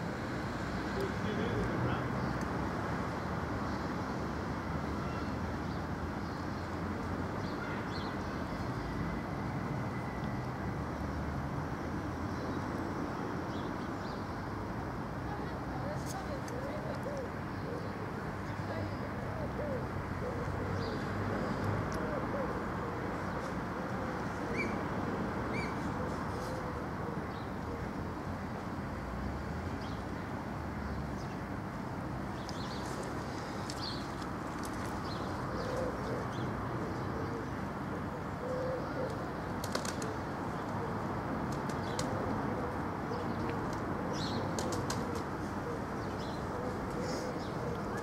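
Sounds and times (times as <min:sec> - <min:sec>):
outdoor background rushing noise: 0:00.0 - 0:48.0
pigeon cooing: 0:16.5 - 0:18.0, 0:19.3 - 0:23.1, 0:35.5 - 0:40.9, 0:44.6 - 0:48.0.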